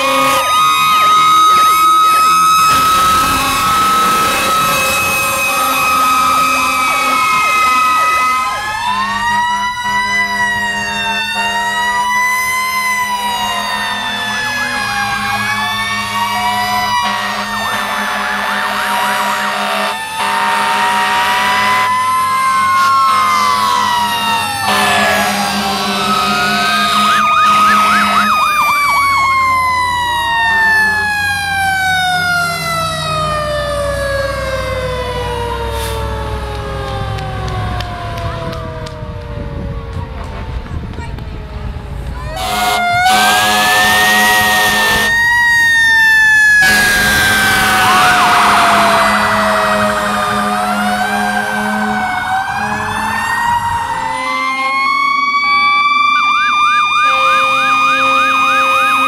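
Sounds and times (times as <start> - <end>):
low air horn blast: 0.0 - 1.8, 2.6 - 8.2, 17.0 - 21.9, 24.6 - 28.5, 42.3 - 45.3, 46.6 - 53.2, 54.0 - 54.9, 57.0 - 59.0
fire engine sirens wailing: 0.0 - 59.0.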